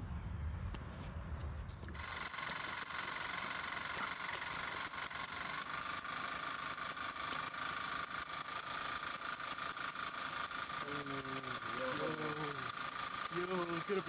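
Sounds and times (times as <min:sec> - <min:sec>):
small engine firing pops: 0:00.7 - 0:14.0.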